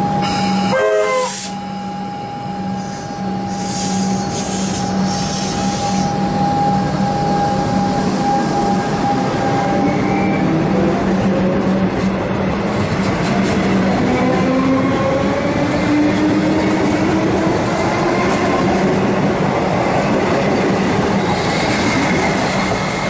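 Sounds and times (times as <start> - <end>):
electric train hum and rumble: 0.0 - 23.0.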